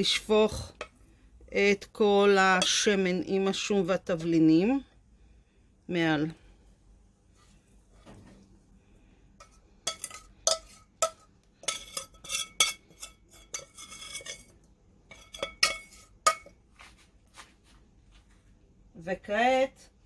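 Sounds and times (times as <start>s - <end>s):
metal spoon clinking on pans: 9.4s - 16.6s.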